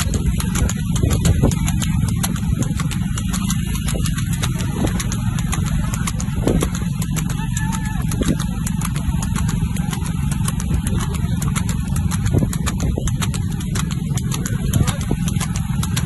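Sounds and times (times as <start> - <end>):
wind on microphone: 0.0 - 5.1
motorcycle engine running: 0.0 - 16.0
rapid patter of clicks: 0.0 - 16.0.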